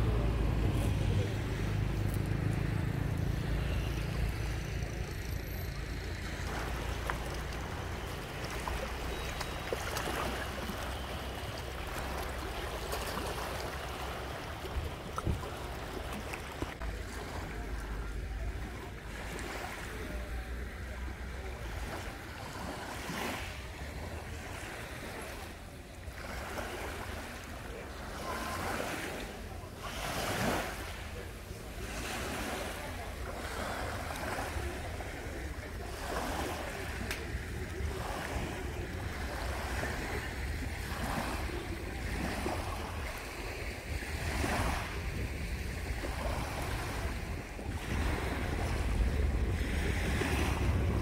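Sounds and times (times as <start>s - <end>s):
low steady rumble: 0.0s - 21.9s
waves washing on shore: 0.0s - 51.0s.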